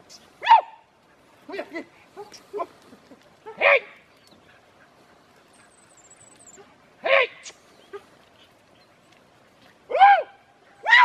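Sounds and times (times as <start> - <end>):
dogs yelping and barking: 3.1 - 9.1.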